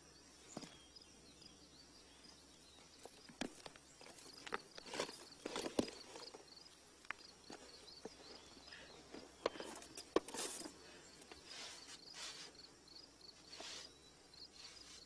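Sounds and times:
insects chirping: 0:00.0 - 0:15.0
rustling: 0:03.0 - 0:12.7
stones knocking and scraping: 0:03.1 - 0:06.4, 0:07.1 - 0:10.8.

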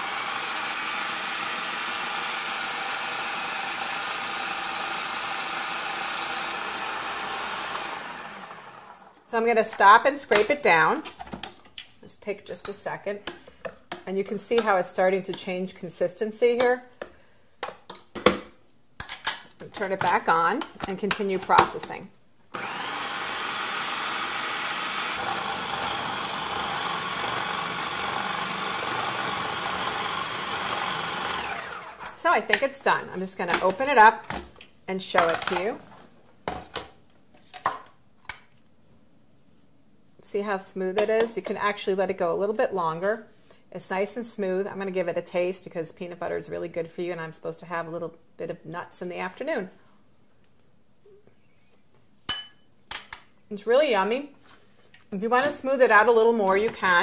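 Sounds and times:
food processor grinding nuts: 0:00.0 - 0:09.2, 0:22.5 - 0:32.2.

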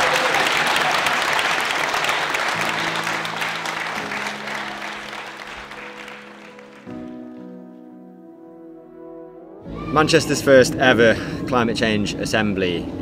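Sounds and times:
people applauding: 0:00.0 - 0:07.5
soft background music: 0:02.6 - 0:13.0.

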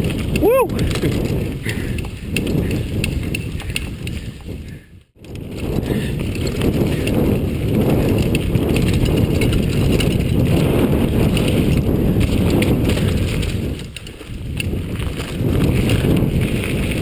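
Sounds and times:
bike rattling: 0:00.0 - 0:17.0
bike tyres rumbling on dirt trail: 0:00.0 - 0:17.0.

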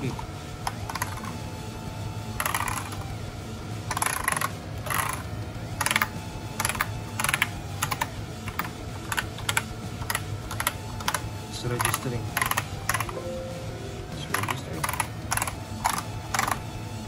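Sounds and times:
mechanical keyboard keystrokes clacking: 0:11.8 - 0:13.2, 0:14.3 - 0:16.6.

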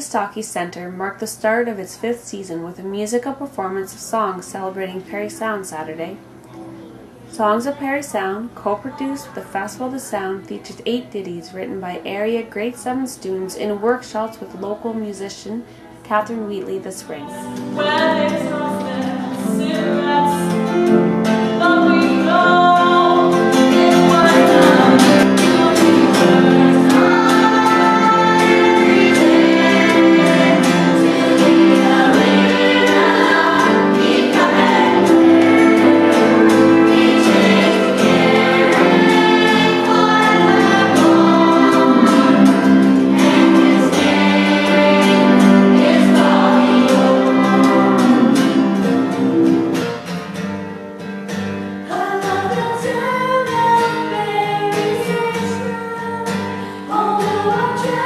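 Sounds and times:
children's choir singing: 0:17.1 - 0:50.1, 0:56.9 - 0:58.0
instrumental accompaniment: 0:17.2 - 0:51.9.

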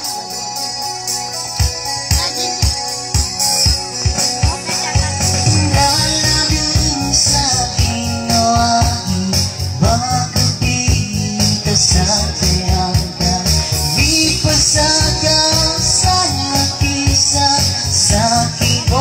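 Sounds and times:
electronic keyboard accompaniment: 0:00.0 - 0:19.0
man singing into a microphone: 0:05.0 - 0:19.0.

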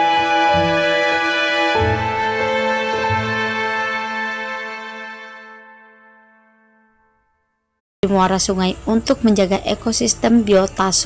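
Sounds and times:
background music held note: 0:00.0 - 0:07.8.

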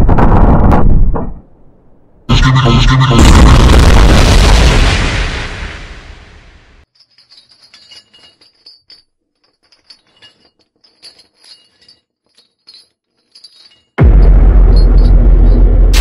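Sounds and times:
explosion boom: 0:02.3 - 0:06.8, 0:14.0 - 0:16.0
light clinks and tinkles: 0:06.8 - 0:14.0.

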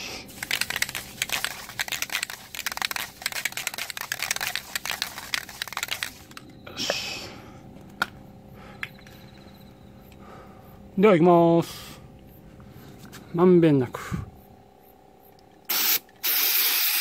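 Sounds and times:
aerosol can rattling when shaken: 0:00.3 - 0:06.5
short rush of spray: 0:15.7 - 0:17.0.

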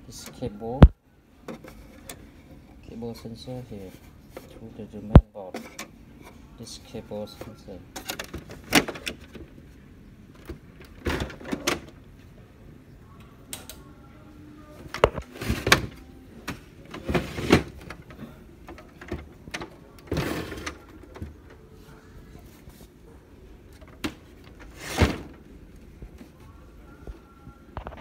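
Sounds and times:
plastic printer parts clunking: 0:07.4 - 0:09.6, 0:10.3 - 0:12.0, 0:14.9 - 0:21.6.

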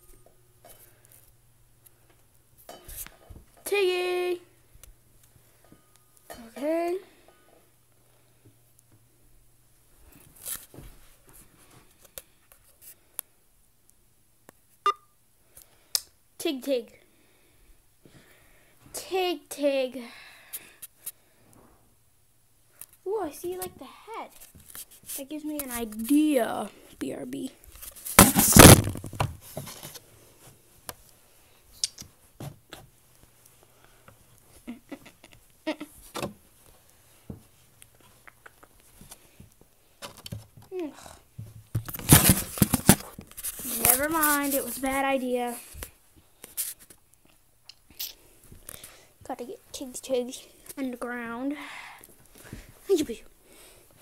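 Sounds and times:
phone handling rustling on fabric: 0:41.8 - 0:44.8.

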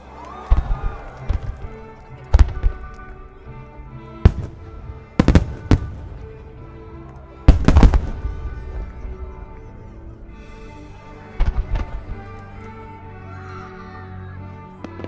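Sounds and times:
music: 0:00.0 - 0:15.0
fireworks bursting with bangs: 0:00.5 - 0:03.2, 0:04.2 - 0:06.5, 0:07.5 - 0:09.4, 0:11.2 - 0:12.3.

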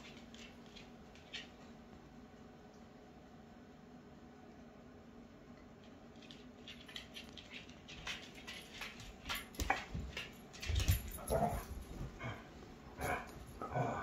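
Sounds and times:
dog paws scuffling on wooden floor: 0:05.8 - 0:13.6.

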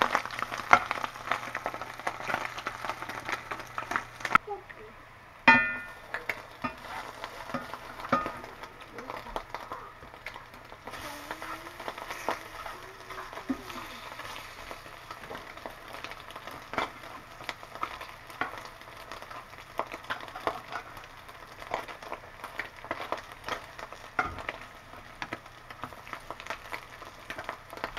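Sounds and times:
meat sizzling in a skillet: 0:00.0 - 0:04.4, 0:05.6 - 0:27.9
metal spatula scraping pan: 0:06.6 - 0:08.4.

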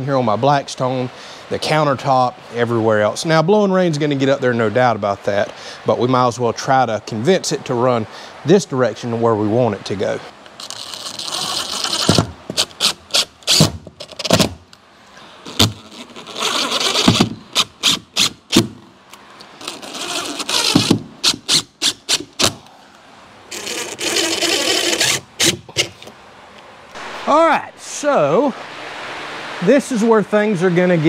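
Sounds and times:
cordless drill driving screws: 0:10.5 - 0:14.5, 0:15.5 - 0:18.8, 0:19.6 - 0:22.6, 0:23.5 - 0:25.7
sharp clicks and knocks: 0:16.9 - 0:19.5.

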